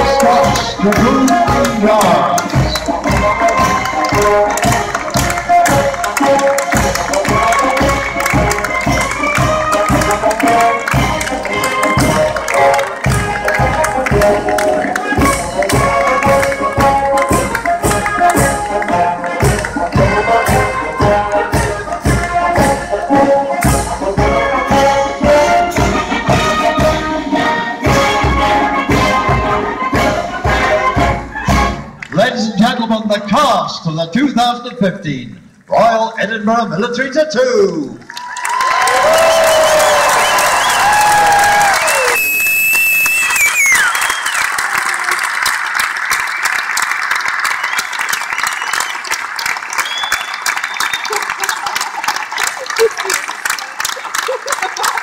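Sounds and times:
large audience applauding: 0:00.0 - 0:23.1, 0:38.0 - 0:55.0
steady drum beat: 0:00.0 - 0:31.8
brass: 0:00.0 - 0:32.4.

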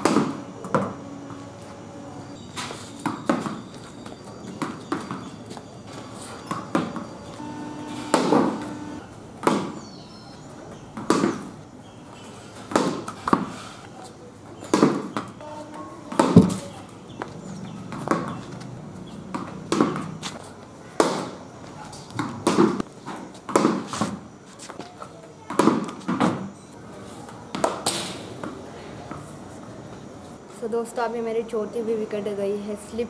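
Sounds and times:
cricket bat striking ball: 0:00.0 - 0:01.0, 0:08.1 - 0:09.8, 0:11.0 - 0:11.5, 0:12.7 - 0:13.6, 0:14.7 - 0:15.3, 0:16.1 - 0:16.6, 0:19.3 - 0:20.2, 0:21.0 - 0:21.4, 0:22.2 - 0:22.8, 0:23.5 - 0:24.1, 0:25.5 - 0:26.4
ball bouncing on concrete: 0:19.3 - 0:20.4.

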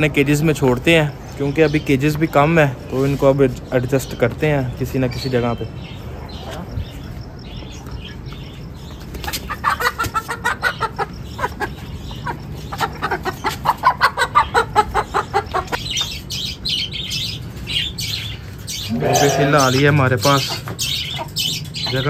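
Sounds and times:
hens clucking: 0:08.8 - 0:16.6, 0:18.4 - 0:22.0
wings flapping and scuffling: 0:08.9 - 0:10.4.

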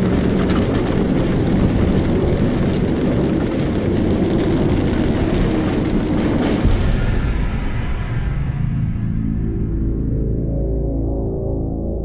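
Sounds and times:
propeller aircraft engines: 0:00.0 - 0:07.0.

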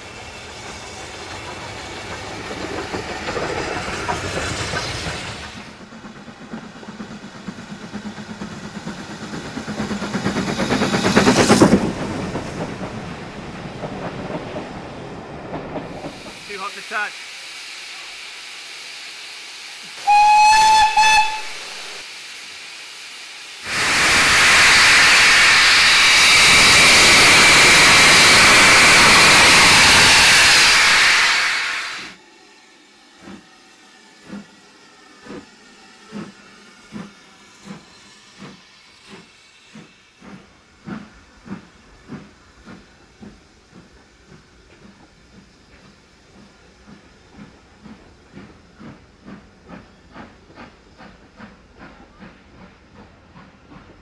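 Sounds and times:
loud steam hiss: 0:15.8 - 0:53.8
steam locomotive whistle: 0:20.0 - 0:22.0, 0:23.8 - 0:32.1.

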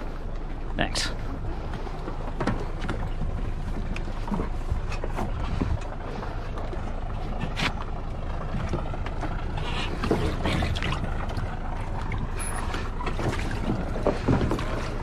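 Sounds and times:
boat engine idling: 0:00.0 - 0:15.0
dock lines knocking against hull: 0:02.1 - 0:05.9.

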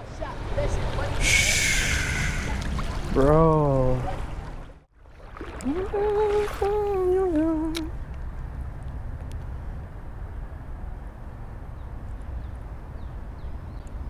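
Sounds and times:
creek rushing: 0:00.0 - 0:07.3.

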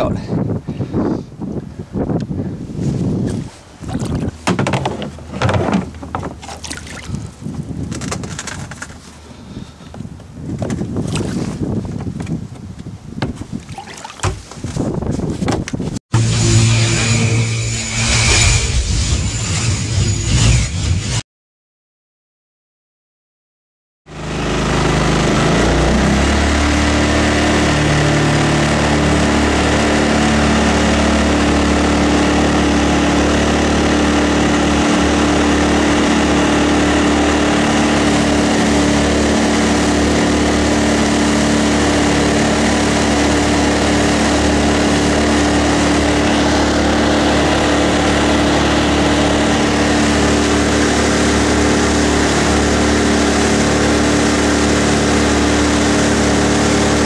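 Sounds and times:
boat engine running at full throttle: 0:02.2 - 0:14.4, 0:24.1 - 0:57.0.

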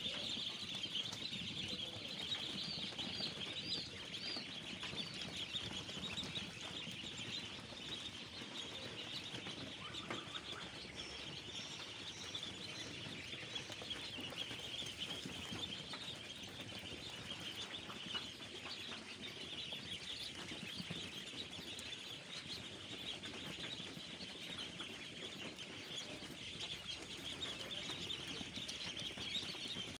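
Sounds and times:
ducklings peeping: 0:00.0 - 0:29.9.

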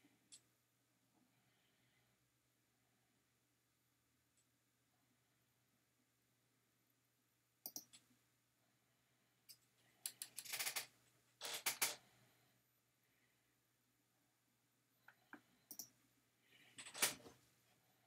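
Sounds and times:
computer mouse clicks: 0:07.6 - 0:08.0, 0:09.5 - 0:10.9, 0:15.1 - 0:16.0.

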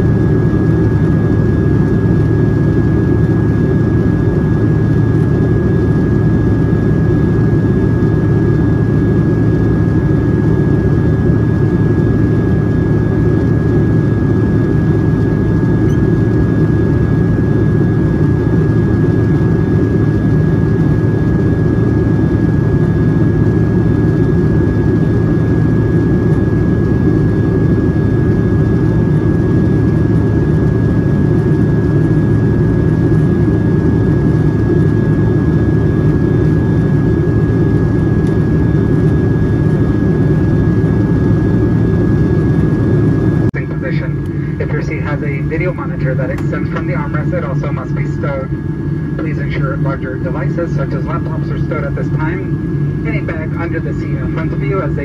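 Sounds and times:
airliner cabin engine rumble: 0:00.0 - 0:55.0.

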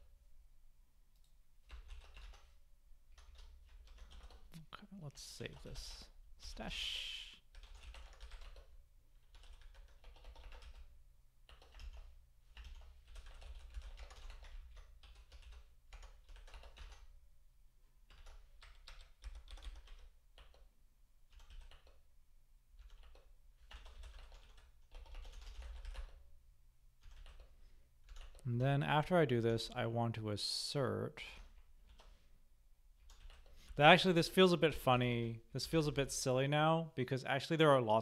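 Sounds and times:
typing on computer keyboard: 0:01.2 - 0:04.5, 0:07.5 - 0:10.9, 0:11.5 - 0:17.1, 0:18.1 - 0:20.7, 0:21.3 - 0:22.0, 0:22.8 - 0:26.3, 0:27.0 - 0:28.4, 0:31.4 - 0:32.2, 0:33.0 - 0:33.8.

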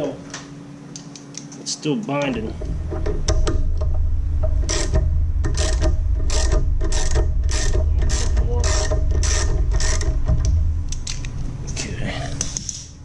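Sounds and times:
socket ratchet clicking: 0:04.7 - 0:11.3.

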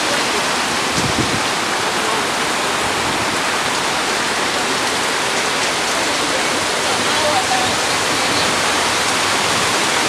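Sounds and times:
heavy rain: 0:00.0 - 0:10.0.

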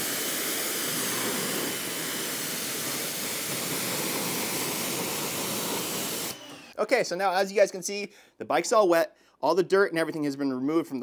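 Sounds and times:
pressure washer water spraying: 0:00.0 - 0:06.6.

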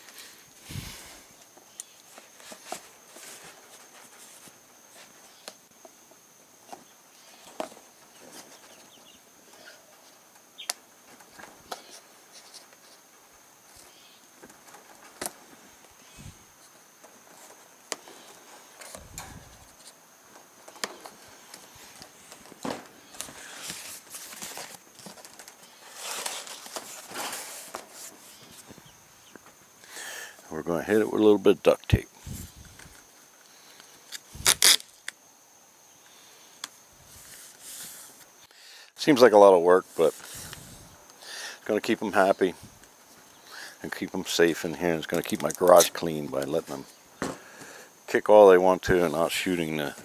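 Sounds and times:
cardboard rustling: 0:20.7 - 0:28.8.

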